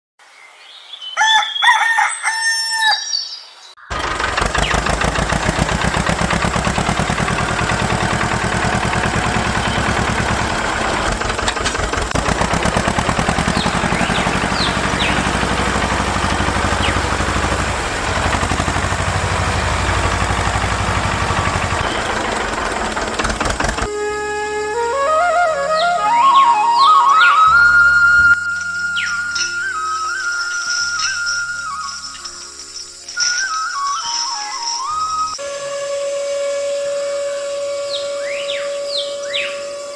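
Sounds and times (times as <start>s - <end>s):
rooster crowing: 1.1s - 3.2s
tractor engine chugging: 3.9s - 24.1s
faint bird chirps: 25.8s - 35.4s.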